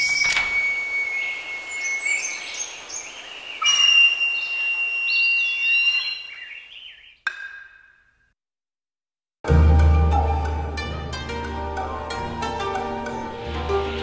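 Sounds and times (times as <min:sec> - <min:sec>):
bird chirps: 0:00.0 - 0:08.2
ringing chime tones: 0:03.6 - 0:06.1.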